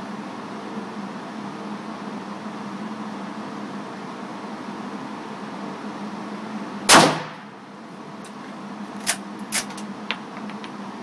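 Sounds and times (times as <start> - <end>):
rifle shot echoing indoors: 6.9 - 7.5.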